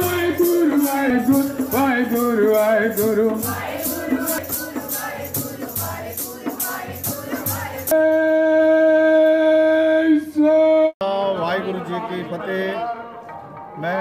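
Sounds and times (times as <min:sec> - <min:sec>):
hand drum beat: 0:00.0 - 0:07.9
shaker-like percussion: 0:00.0 - 0:08.0
women singing a hymn together: 0:03.3 - 0:07.9.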